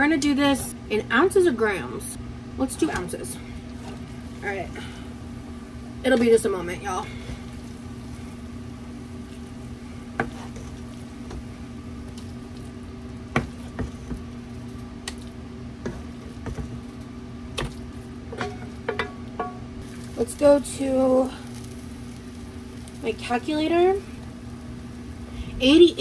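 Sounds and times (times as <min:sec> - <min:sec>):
steady hum: 0:00.0 - 0:26.0.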